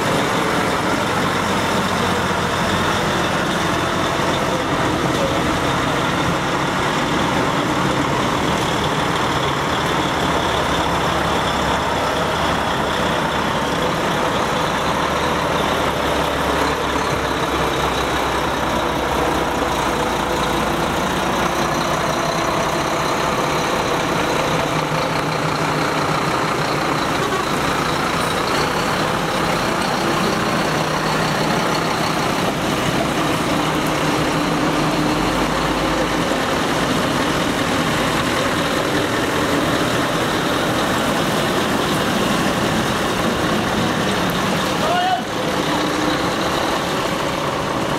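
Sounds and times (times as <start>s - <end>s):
diesel truck engines driving past: 0.0s - 47.9s.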